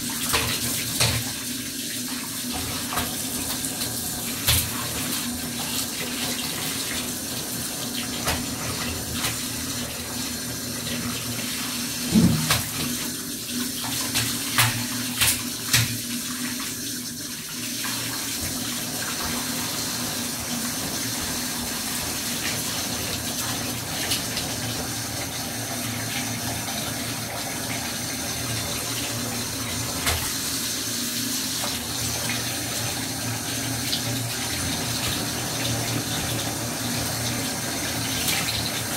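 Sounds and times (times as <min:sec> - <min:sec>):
water running into bathtub: 0:00.0 - 0:38.9
sharp knocks and splashes: 0:00.2 - 0:01.4, 0:04.4 - 0:05.1, 0:12.1 - 0:13.0, 0:13.8 - 0:16.1, 0:30.0 - 0:30.4.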